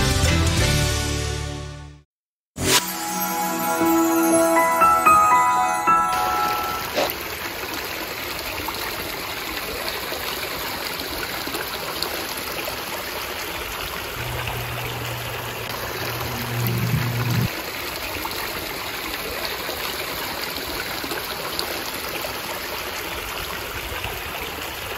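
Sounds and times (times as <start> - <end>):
stream water over rocks: 6.9 - 24.9
low steady hum: 14.2 - 17.5.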